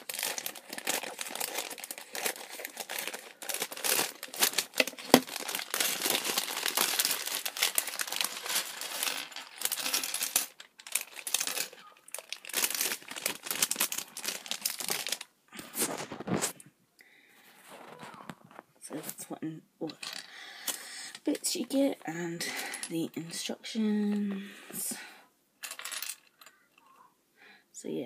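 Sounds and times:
plastic bricks clattering on table: 0:00.0 - 0:15.2, 0:25.6 - 0:26.6
plastic bag crinkling: 0:00.0 - 0:16.6.

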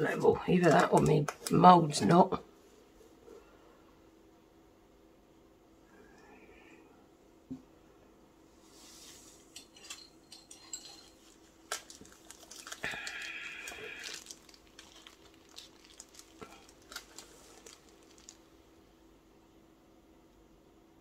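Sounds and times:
rustling or scraping: 0:08.6 - 0:18.4.

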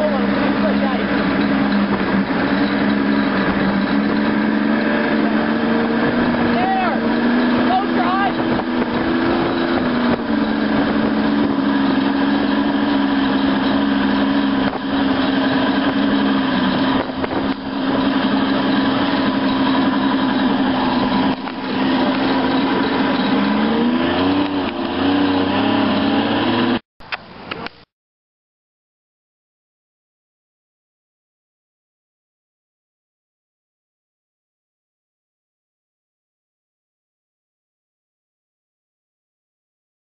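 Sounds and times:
wind and water rushing: 0:00.0 - 0:26.8
outboard engine running: 0:00.0 - 0:27.9.

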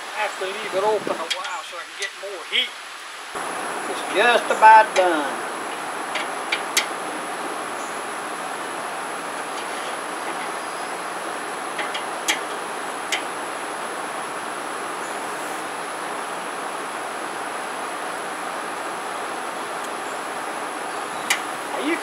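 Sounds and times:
burger patties sizzling on grill: 0:03.4 - 0:14.4
metal tongs clicking on grate: 0:11.8 - 0:13.2.

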